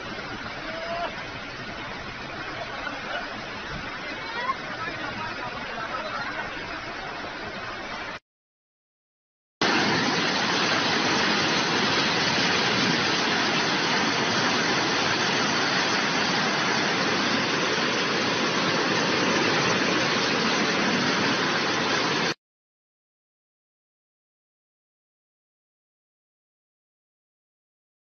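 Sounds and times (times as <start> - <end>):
floodwater rushing: 0.0 - 8.2, 9.6 - 22.4.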